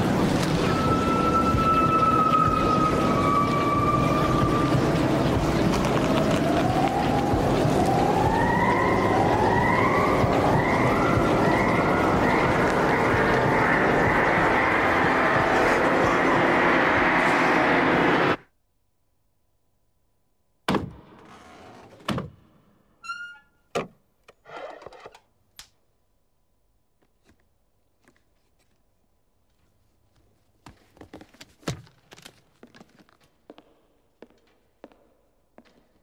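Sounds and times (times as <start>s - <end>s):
loud dense rushing noise: 10.1s - 18.4s.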